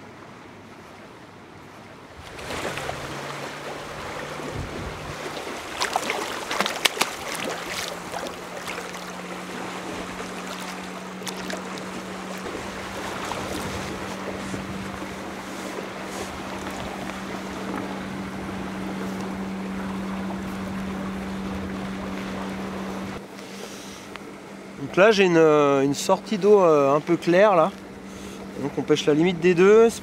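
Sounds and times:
steady low hum: 2.1 - 30.0
fish thrashing and splashing water: 2.2 - 21.0.

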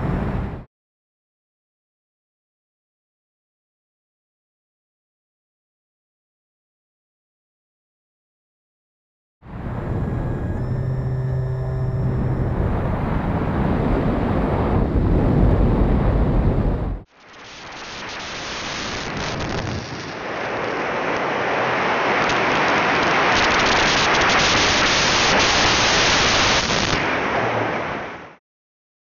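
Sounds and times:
wind rush on microphone: 0.0 - 0.6, 9.4 - 28.3
propeller noise: 9.5 - 15.4.

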